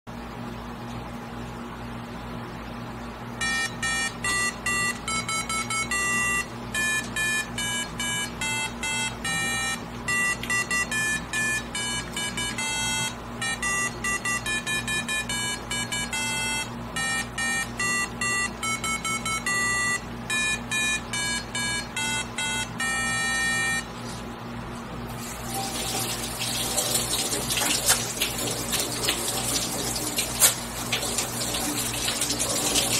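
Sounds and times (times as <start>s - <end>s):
electronic buzzer beeping tune: 3.4s - 23.9s.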